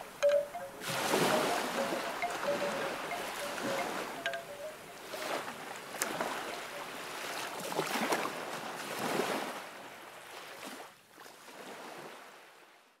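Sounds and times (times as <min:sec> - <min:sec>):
small sea waves washing on shore: 0:05.0 - 0:12.6.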